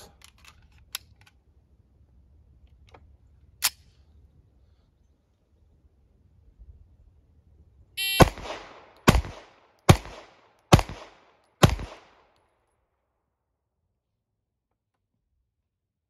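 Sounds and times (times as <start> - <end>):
shot timer beep: 8.0 - 8.4
pistol shots with echo: 8.0 - 12.4.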